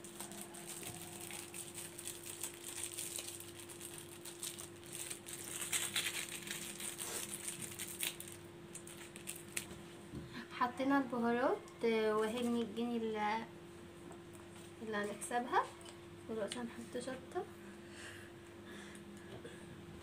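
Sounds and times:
sachets crinkling and tearing: 0:00.0 - 0:09.7
faint steady hum: 0:00.0 - 0:20.0.

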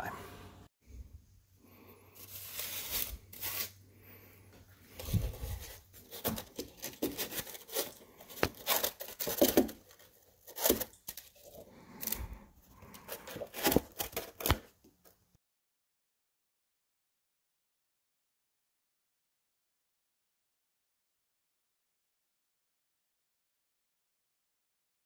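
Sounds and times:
broom bristles scratching wood and stone: 0:02.2 - 0:03.8.

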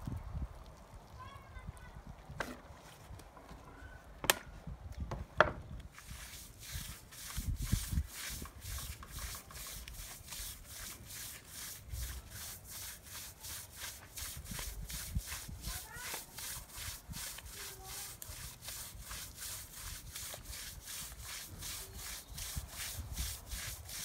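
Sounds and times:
broom scrubbing wet rug: 0:05.9 - 0:24.0.

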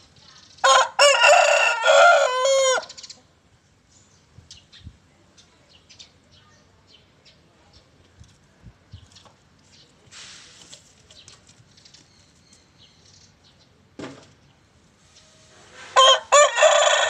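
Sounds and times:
rooster crowing: 0:00.6 - 0:03.0, 0:16.0 - 0:17.0.

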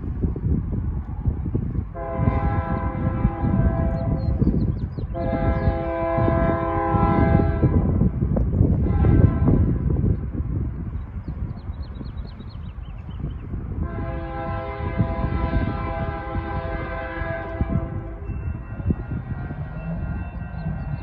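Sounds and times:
locomotive air horn blasts: 0:01.9 - 0:04.4, 0:05.1 - 0:08.0, 0:08.8 - 0:09.8, 0:13.8 - 0:20.6.

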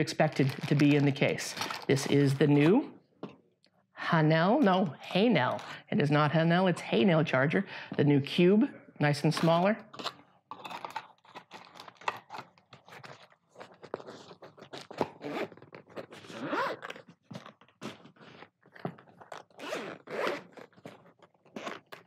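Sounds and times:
zippers rasping: 0:13.8 - 0:22.0.

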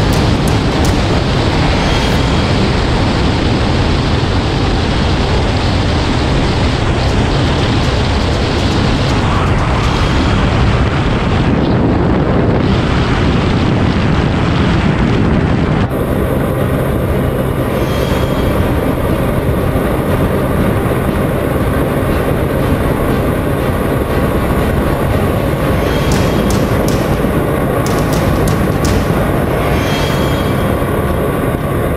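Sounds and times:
heavy wind rush: 0:00.0 - 0:31.9.

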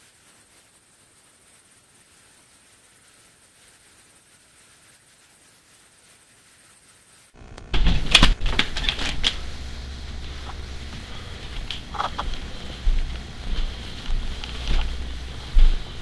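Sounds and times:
faint hiss with high whine: 0:00.0 - 0:16.0
low rumble: 0:08.9 - 0:16.0.

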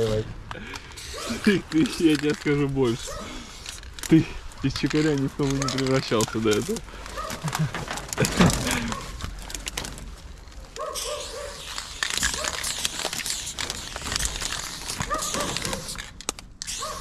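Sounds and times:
spray paint can hissing: 0:00.9 - 0:04.0, 0:10.9 - 0:17.0.

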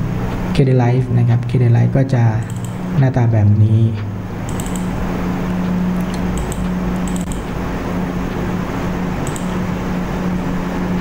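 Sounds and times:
room noise hiss: 0:00.0 - 0:11.0
steady background hum: 0:00.0 - 0:11.0
faint clicks: 0:04.5 - 0:04.9, 0:09.2 - 0:09.6.

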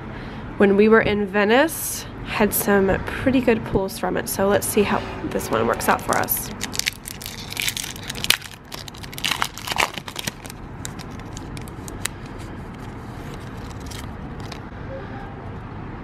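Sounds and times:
low background rumble: 0:00.0 - 0:15.4
foil wrapper tearing and crinkling: 0:06.1 - 0:14.6.

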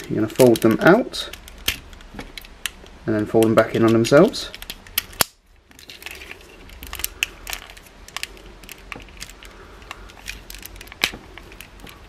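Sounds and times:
plastic toy clicking and rattling: 0:04.5 - 0:12.0.

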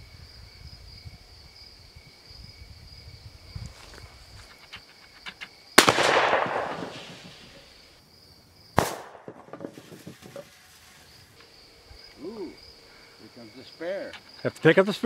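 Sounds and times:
high insect trill: 0:00.0 - 0:15.0
shotgun blasts echoing: 0:05.8 - 0:07.5, 0:08.8 - 0:09.5.

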